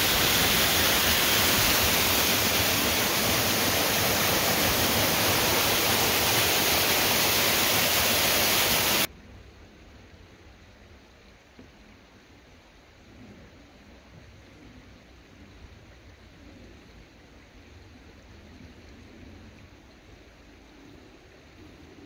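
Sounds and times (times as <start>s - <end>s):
water rushing: 0.0s - 9.1s.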